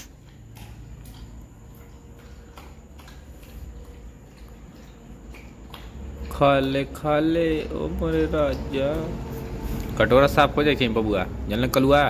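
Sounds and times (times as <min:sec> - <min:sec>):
dog lapping and chewing: 0:00.0 - 0:12.0.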